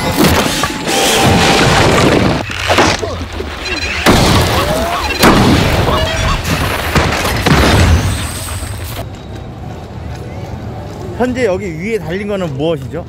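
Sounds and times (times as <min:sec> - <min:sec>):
loud booms: 0:04.0 - 0:08.4.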